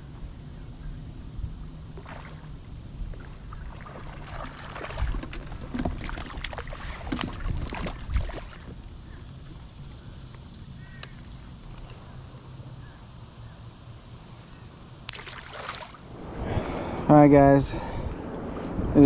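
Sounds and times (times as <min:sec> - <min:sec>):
wind: 0:00.0 - 0:19.0
water rumble: 0:01.2 - 0:10.0, 0:15.1 - 0:19.0.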